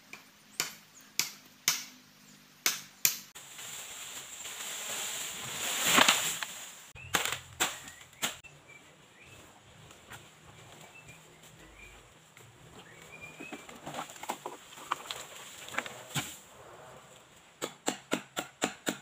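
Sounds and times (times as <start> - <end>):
chopping into bamboo: 0.1 - 2.0, 2.6 - 3.3, 7.1 - 8.5, 17.6 - 19.0
bamboo pole crashing through leaves: 3.2 - 8.5, 13.8 - 16.4.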